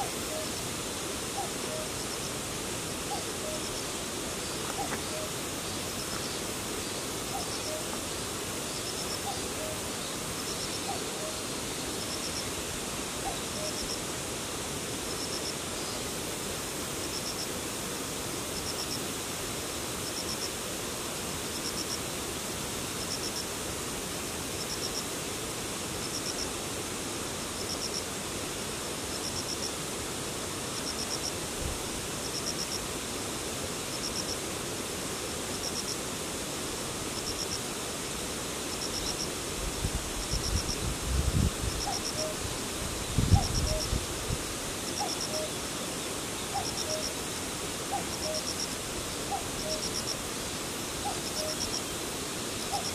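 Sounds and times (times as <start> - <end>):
insect chirping in trills: 0.0 - 14.1, 33.8 - 34.4, 37.2 - 52.9
steady hiss: 0.0 - 52.9.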